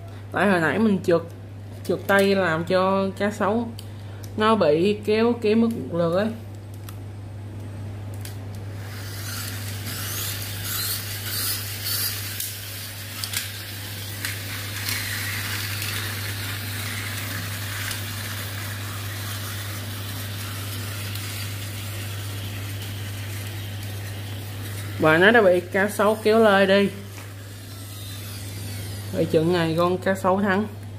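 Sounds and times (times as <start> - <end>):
steady low hum: 0.0 - 30.9
toy car friction motor rasps: 8.8 - 25.3, 27.3 - 29.4
toy car motors whirring: 8.8 - 29.8.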